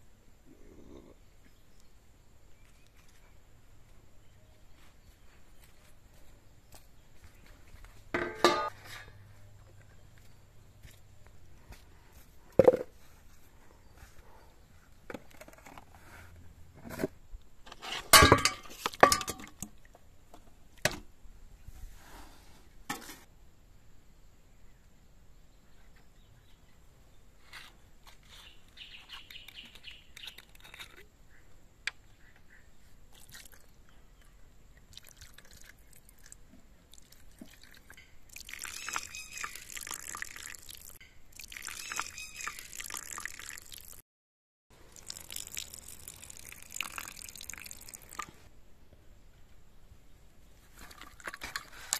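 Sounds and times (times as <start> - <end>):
wine pouring from glass bottle: 36.9 - 44.0, 44.9 - 48.4.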